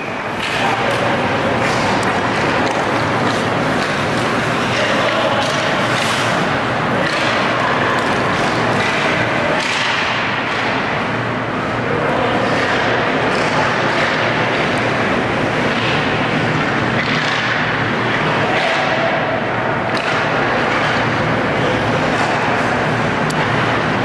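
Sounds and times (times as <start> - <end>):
skate blades scraping ice: 0.4 - 10.0.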